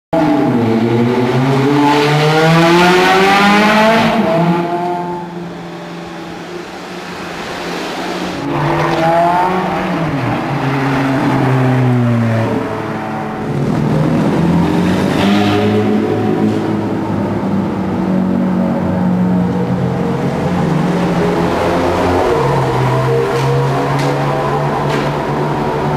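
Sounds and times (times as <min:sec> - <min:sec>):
car engines accelerating in tunnel: 0:00.2 - 0:25.9.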